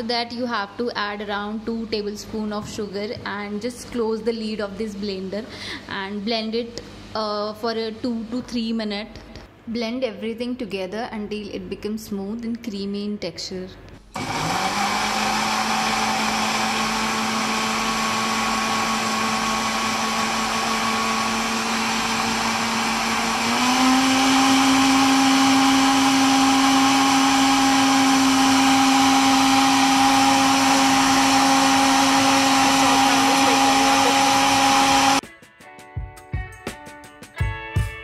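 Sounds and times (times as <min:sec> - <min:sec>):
blender motor whirring: 0:14.1 - 0:35.2.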